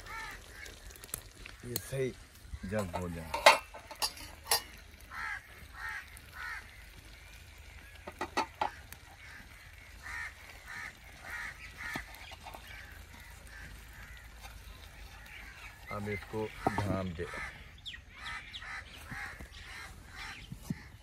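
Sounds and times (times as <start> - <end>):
geese honking: 5.0 - 21.0.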